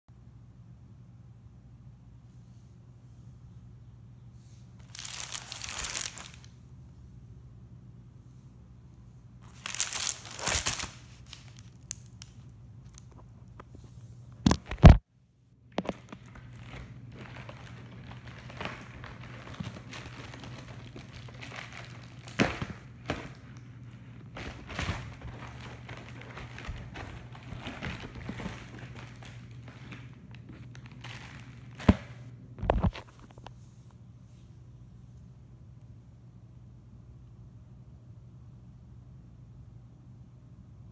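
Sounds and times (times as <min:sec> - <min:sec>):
plastic mailer crinkling and tearing: 0:04.8 - 0:06.6, 0:09.4 - 0:13.2, 0:15.8 - 0:23.6, 0:24.2 - 0:32.0.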